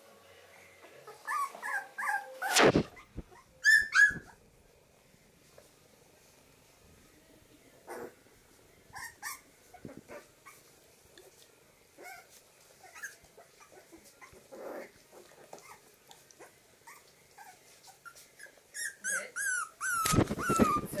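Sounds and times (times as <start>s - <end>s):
puppies squeaking and whimpering: 1.0s - 4.4s, 8.9s - 10.7s, 12.0s - 21.0s
puppies yelping: 1.1s - 4.3s, 9.0s - 9.5s, 12.0s - 21.0s.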